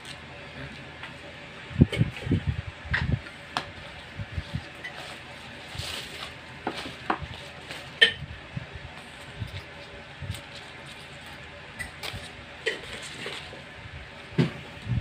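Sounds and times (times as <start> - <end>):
stalks snapping and leaves rustling: 9.0 - 13.6.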